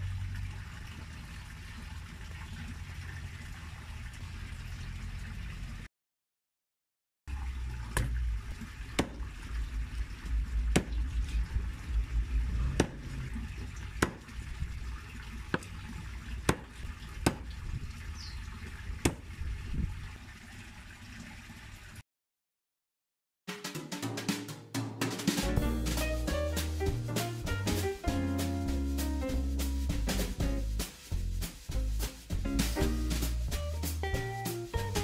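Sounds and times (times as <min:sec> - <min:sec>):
low background rumble: 0:07.4 - 0:18.0
cleaver chopping chicken on wood: 0:09.0 - 0:09.2, 0:10.8 - 0:11.0, 0:12.8 - 0:13.0, 0:14.0 - 0:14.2, 0:16.5 - 0:16.7.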